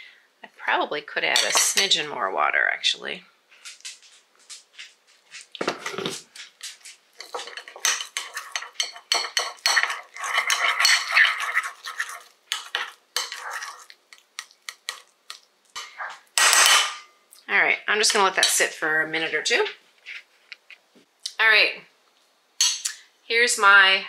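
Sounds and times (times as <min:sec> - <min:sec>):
spoon stirring and scraping bowl: 0:01.3 - 0:02.0, 0:03.7 - 0:17.1.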